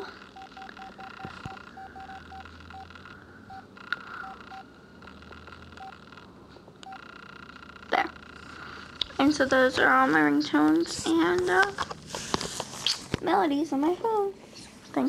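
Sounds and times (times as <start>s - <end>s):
phone key beeps: 0.4s - 6.2s, 6.8s - 7.5s.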